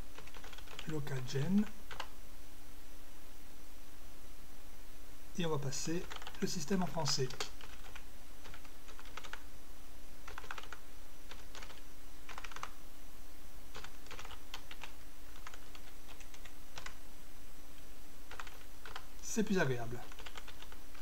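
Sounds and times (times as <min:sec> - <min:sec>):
faint steady hum: 0:00.0 - 0:21.0
keyboard keystrokes: 0:06.0 - 0:06.4, 0:13.8 - 0:17.0, 0:20.0 - 0:20.8.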